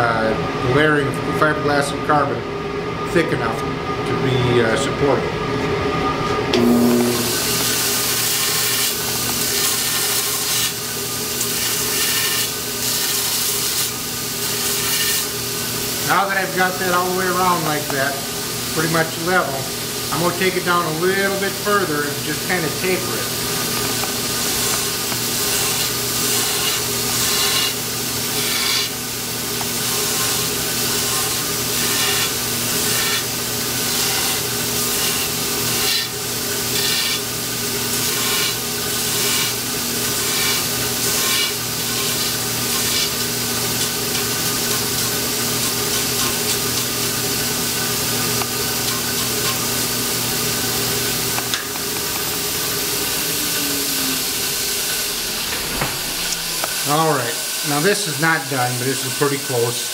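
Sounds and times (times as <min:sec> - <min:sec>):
power grinder humming: 0:06.5 - 0:16.0, 0:22.6 - 0:57.9.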